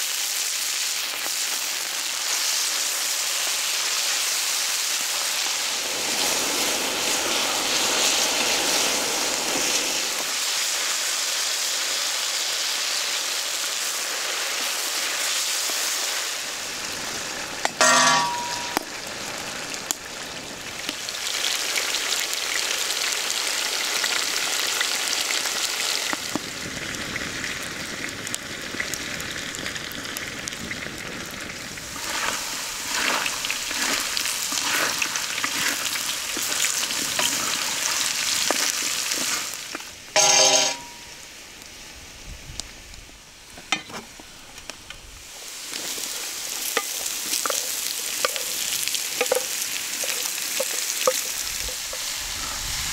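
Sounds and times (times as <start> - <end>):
food sizzling in a pan: 0.0 - 42.9, 45.2 - 52.9
stirring in a pan: 17.7 - 18.8, 31.9 - 41.0, 45.7 - 52.1
metal utensil clanging on pan: 17.7 - 18.9, 40.2 - 41.1, 49.2 - 51.4.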